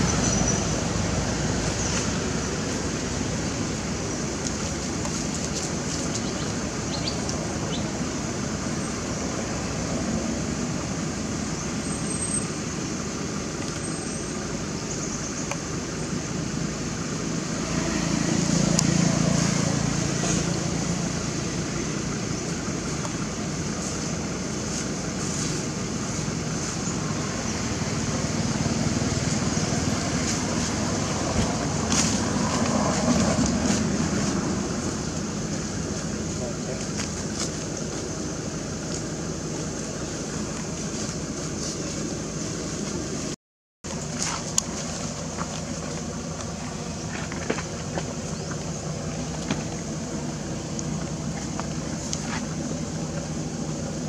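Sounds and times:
low rumble with hiss: 0:00.0 - 0:54.0.

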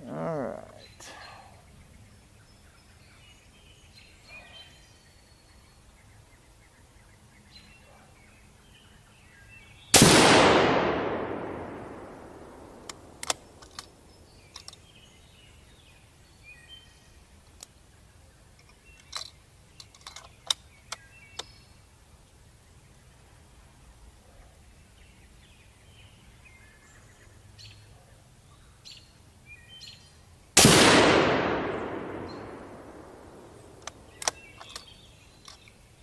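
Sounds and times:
rifle shot with echo: 0:09.9 - 0:14.0, 0:30.6 - 0:34.5.

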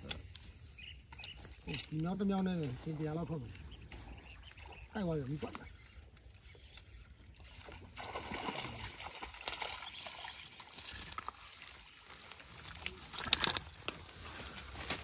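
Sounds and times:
fish splashing in shallow water: 0:06.0 - 0:15.0
rustling: 0:10.8 - 0:15.0.

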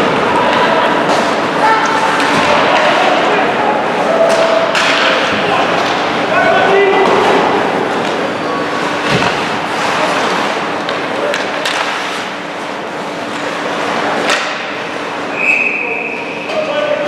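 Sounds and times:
crowd murmur: 0:00.0 - 0:17.0
hockey sticks and puck clacking: 0:00.4 - 0:03.3, 0:04.2 - 0:06.2, 0:07.0 - 0:15.0
referee whistle: 0:15.3 - 0:16.6.

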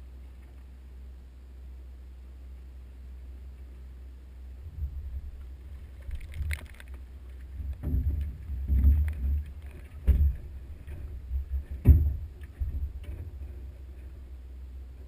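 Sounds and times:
wind rumble on microphone: 0:04.5 - 0:15.0
knocks in aluminium boat: 0:07.5 - 0:13.6.

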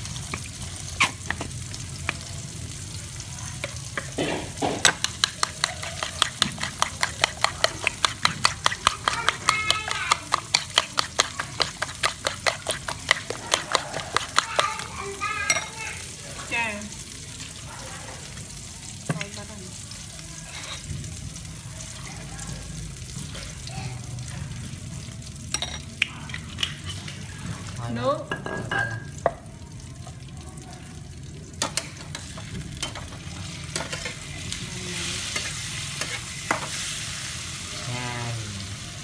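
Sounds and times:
spoon beating eggs in bowl: 0:03.6 - 0:15.8.

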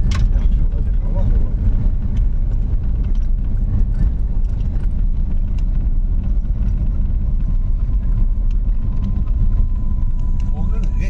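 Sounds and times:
car rumbling on gravel: 0:00.0 - 0:11.0.

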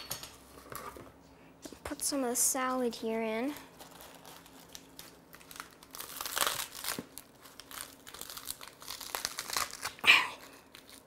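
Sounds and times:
lettuce leaves being torn: 0:03.7 - 0:11.0.

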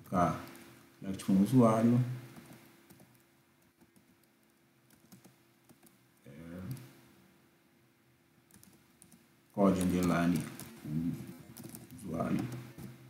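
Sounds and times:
typing on computer keyboard: 0:02.4 - 0:06.0, 0:08.5 - 0:10.9, 0:11.5 - 0:13.0.

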